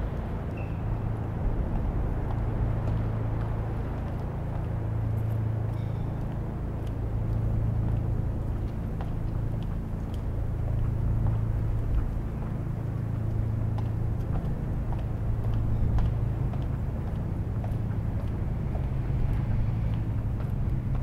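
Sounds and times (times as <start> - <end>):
street traffic rumble: 0.0 - 21.0.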